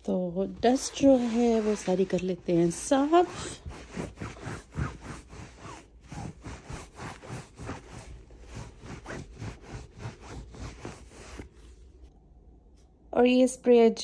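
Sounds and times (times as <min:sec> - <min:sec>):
cloth rubbing on upholstery: 0:00.5 - 0:12.1.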